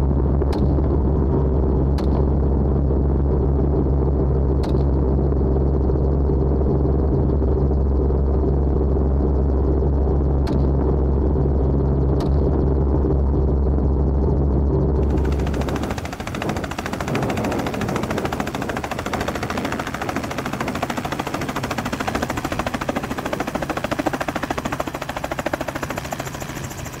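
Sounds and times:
helicopter rotor chopping: 0:15.0 - 0:27.0.

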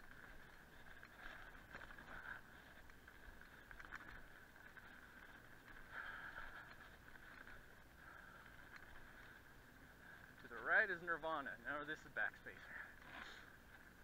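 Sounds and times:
bike ticking and rattling: 0:00.0 - 0:14.0.

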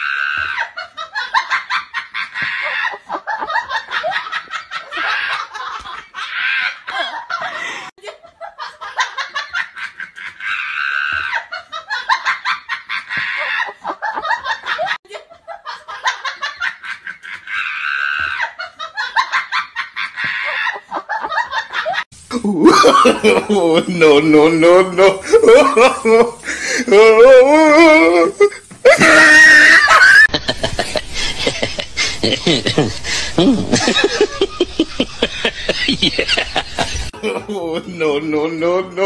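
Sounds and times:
person laughing hard: 0:00.1 - 0:39.0.

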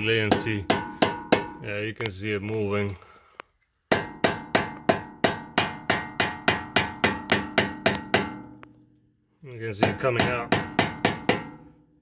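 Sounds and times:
hammer tapping on screwdriver: 0:03.9 - 0:08.8, 0:09.8 - 0:11.6.

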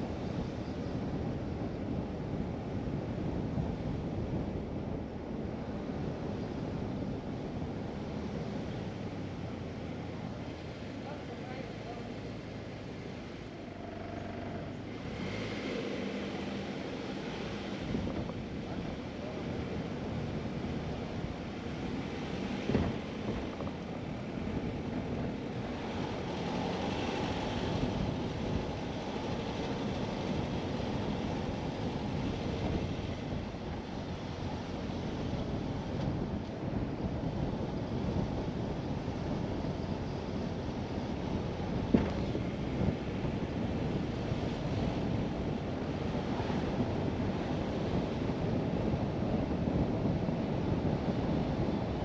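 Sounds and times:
car tyre and road noise: 0:00.0 - 0:52.0
wind buffeting microphone: 0:16.1 - 0:52.0.

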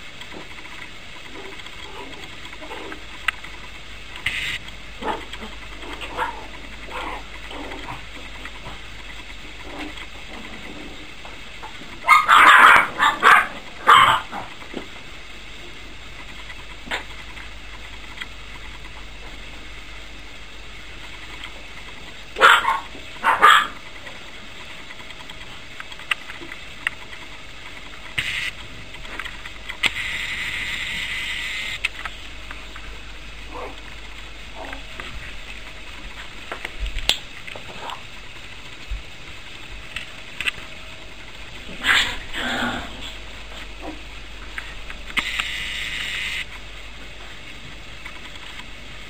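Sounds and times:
puppies yapping: 0:05.0 - 0:08.0, 0:11.6 - 0:14.6, 0:22.4 - 0:23.8.

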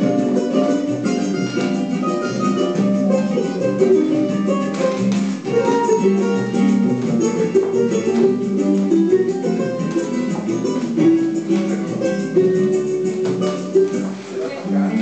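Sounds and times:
latin dance music with guitar: 0:00.0 - 0:15.0.

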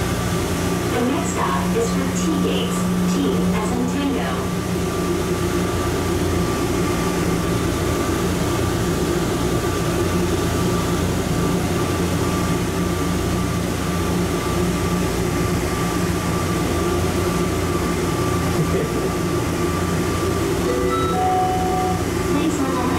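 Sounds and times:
constant low hum: 0:00.0 - 0:22.9
thin high whine: 0:20.6 - 0:22.9.

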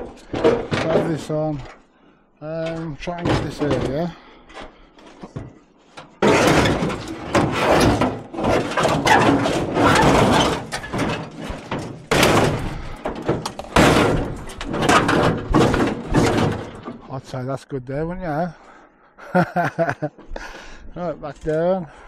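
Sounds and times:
sheet metal scraping and clattering: 0:00.0 - 0:01.8, 0:05.1 - 0:17.2.

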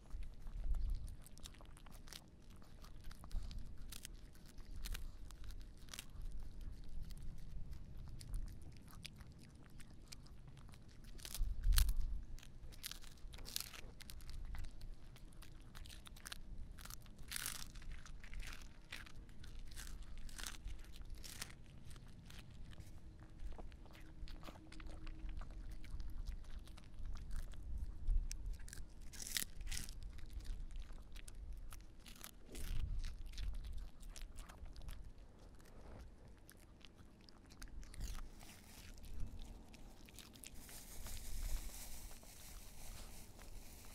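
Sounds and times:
wind rumble on microphone: 0:00.0 - 0:01.3, 0:11.3 - 0:12.5, 0:24.3 - 0:28.8, 0:32.6 - 0:35.0
dog crunching a treat: 0:00.0 - 0:43.9.

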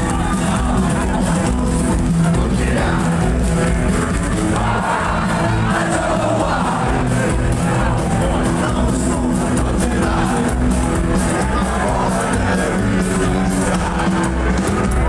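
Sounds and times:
crowd shouting and singing along: 0:00.0 - 0:15.0
rock band playing live: 0:00.0 - 0:15.0.

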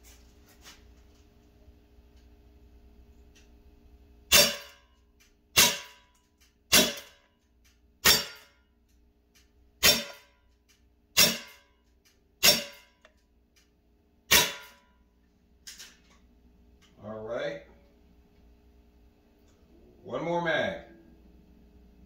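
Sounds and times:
pellet pistol shots: 0:04.3 - 0:04.8, 0:05.6 - 0:06.0, 0:06.7 - 0:07.2, 0:09.8 - 0:10.3, 0:11.2 - 0:11.6, 0:12.4 - 0:12.9, 0:14.3 - 0:14.8.

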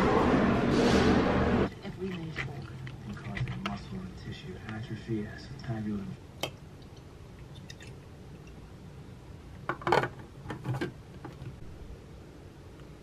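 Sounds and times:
plastic tumbler clattering on desk: 0:09.7 - 0:11.4.

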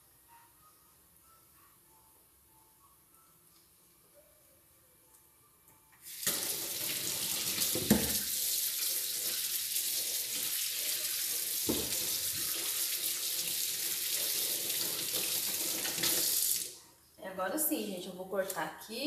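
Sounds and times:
kitchen tap turned on: 0:06.1 - 0:08.5, 0:11.6 - 0:12.6
water running into metal sink: 0:06.1 - 0:16.7.

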